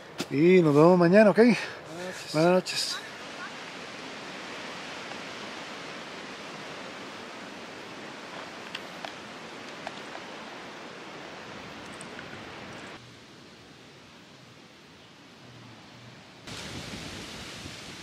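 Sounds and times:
wind noise: 16.4s - 18.0s.

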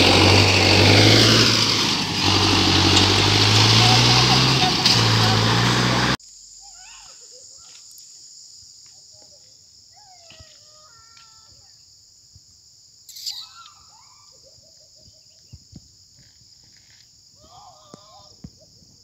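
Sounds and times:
insects droning: 2.6s - 19.0s
bird calls and chirps: 13.1s - 15.7s.

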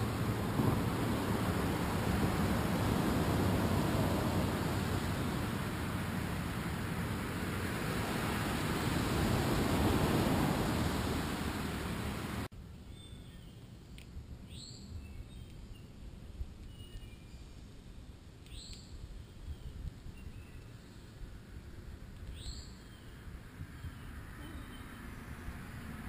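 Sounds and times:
wind rushing on microphone: 0.0s - 12.5s, 18.8s - 26.0s
bird chirps: 16.6s - 17.5s, 18.4s - 21.1s, 22.3s - 25.4s.

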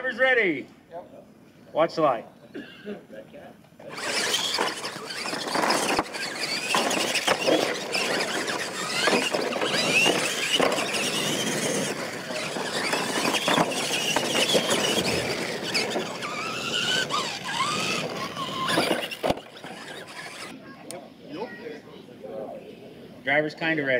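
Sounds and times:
toy truck electric motors whining: 3.8s - 20.6s
trucks knocking on dirt: 3.9s - 20.5s.

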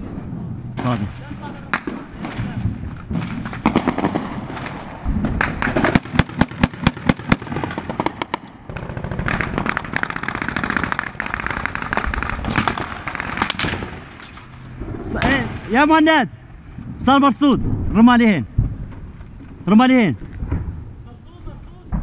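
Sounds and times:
rapid gunfire: 1.7s - 14.0s.

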